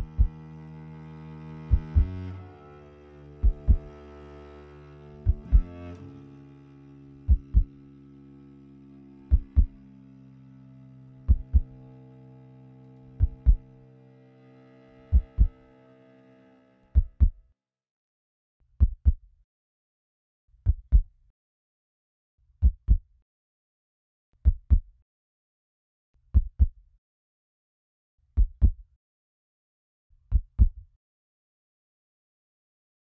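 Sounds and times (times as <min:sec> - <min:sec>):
slow heartbeat thumps: 0:00.0 - 0:00.6, 0:01.5 - 0:02.4, 0:03.4 - 0:04.2, 0:05.2 - 0:06.0, 0:07.2 - 0:07.7, 0:09.3 - 0:09.8, 0:11.2 - 0:11.8, 0:13.1 - 0:13.7, 0:15.0 - 0:15.6.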